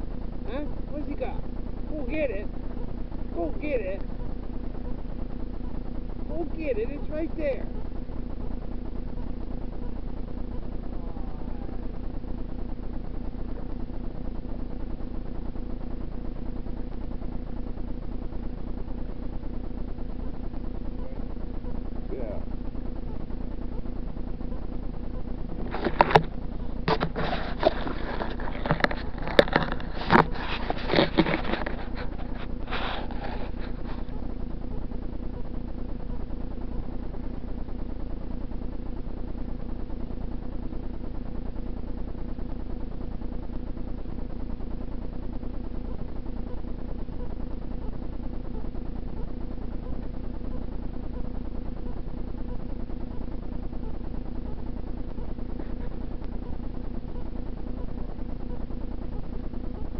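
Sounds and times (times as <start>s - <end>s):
steady low hum: 0.0s - 59.9s
camera handling rustles and clicks: 25.6s - 34.0s.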